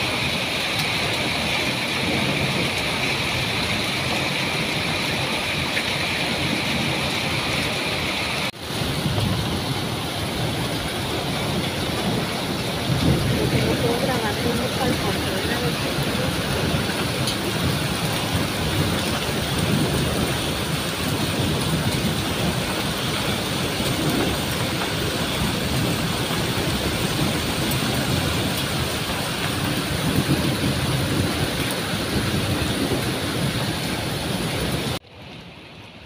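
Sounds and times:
heavy rain: 0:00.0 - 0:36.0.

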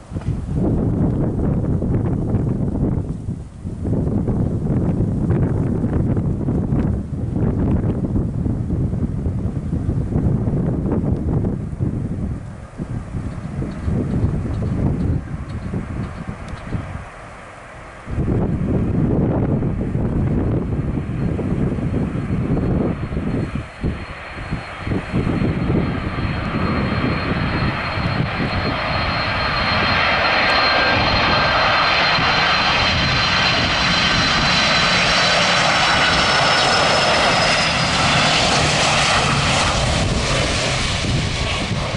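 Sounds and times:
jet engines rushing: 0:00.0 - 0:41.9
high engine whine: 0:09.9 - 0:41.9.

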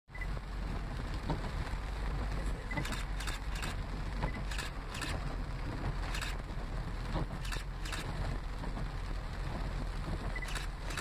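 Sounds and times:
engine and tyres rumbling: 0:00.1 - 0:11.0.

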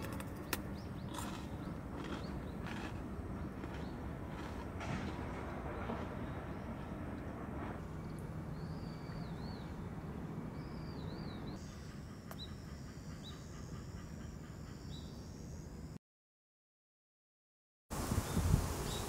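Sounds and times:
insects high-pitched drone: 0:11.6 - 0:16.0.

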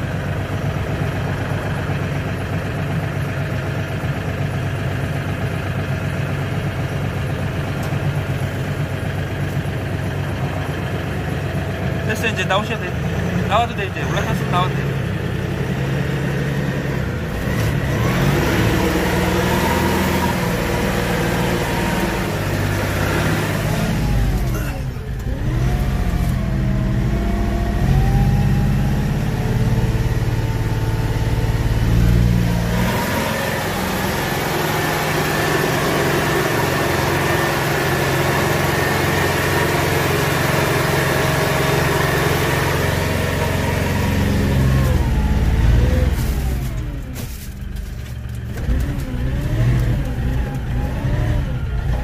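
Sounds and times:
tractor diesel engine revving: 0:00.0 - 0:52.0.

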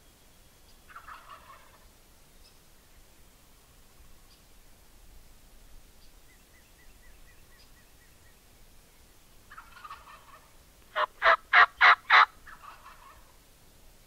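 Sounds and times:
turkey gobbling: 0:00.9 - 0:01.8, 0:09.5 - 0:13.3
turkey hen yelps: 0:00.9 - 0:01.8, 0:09.5 - 0:13.3.

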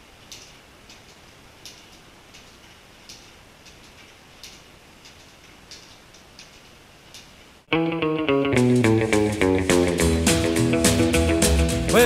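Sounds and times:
low steady hiss: 0:00.0 - 0:12.0
small faint clicks: 0:00.1 - 0:07.6.

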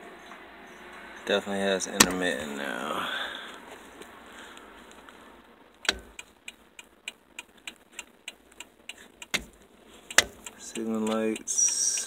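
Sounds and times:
turn signal ticking: 0:01.8 - 0:02.5, 0:05.7 - 0:12.0.

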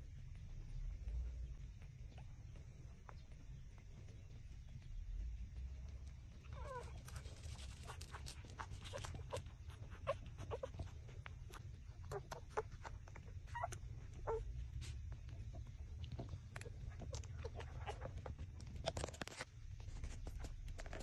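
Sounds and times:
puppies sucking while nursing: 0:00.0 - 0:21.0
puppy squeaking: 0:06.4 - 0:14.6.

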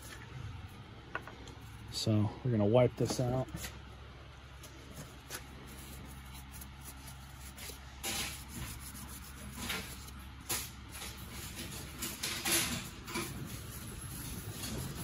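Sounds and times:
cloth rag rubbing plastic: 0:04.9 - 0:12.3, 0:13.0 - 0:15.0.

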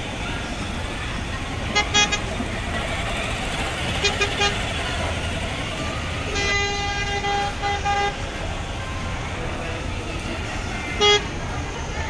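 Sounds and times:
toy car electronic horn beeping: 0:06.3 - 0:08.2, 0:10.8 - 0:11.3.

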